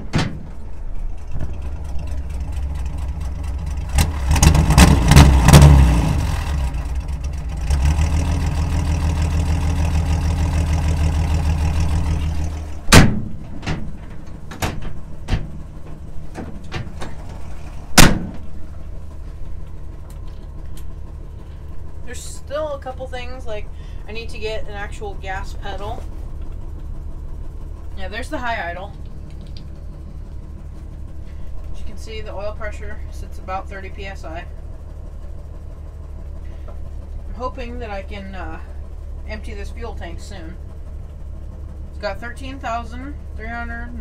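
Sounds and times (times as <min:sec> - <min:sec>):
pickup engine idling: 0:00.0 - 0:44.0
sharp knocks: 0:12.9 - 0:15.6, 0:17.9 - 0:18.4.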